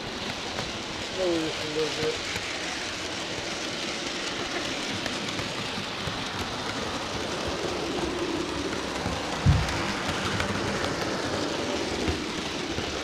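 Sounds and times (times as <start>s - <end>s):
model train wheels rolling on rails: 0.0s - 13.0s.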